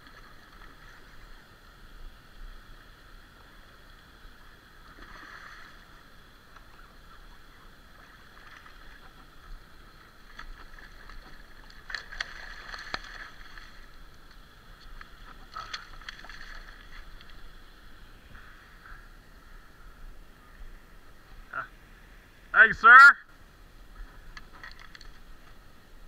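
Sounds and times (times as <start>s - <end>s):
fish thrashing and splashing: 8.0s - 14.0s, 15.0s - 17.4s.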